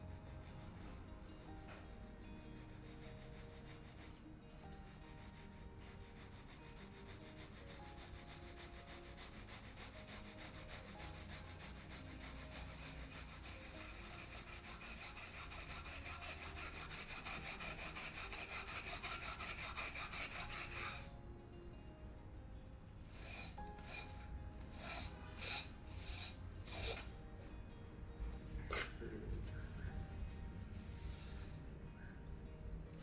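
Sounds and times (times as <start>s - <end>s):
scouring pad scrubbing frying pan: 8.2s - 21.1s.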